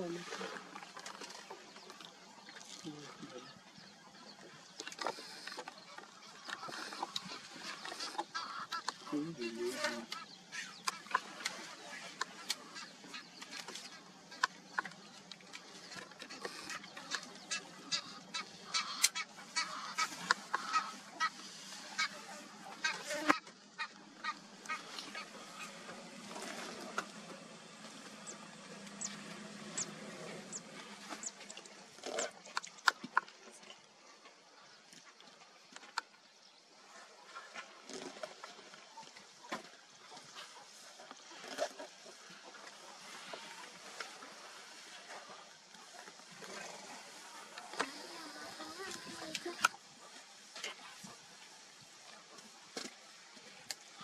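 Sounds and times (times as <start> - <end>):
birds chirping and calling: 2.9 - 26.0, 27.9 - 31.6.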